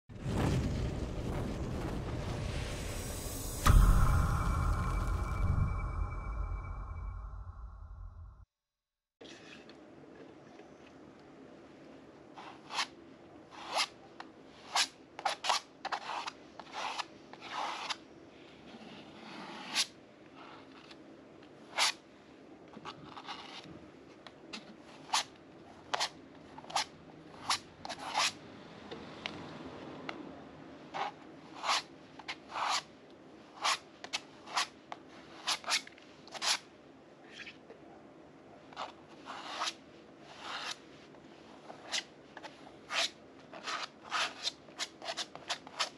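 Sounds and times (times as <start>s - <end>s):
palette knife scraping canvas: 12.4s - 21.0s, 22.8s - 23.7s, 24.5s - 28.4s, 30.9s - 32.9s, 33.5s - 36.7s, 38.7s - 45.9s.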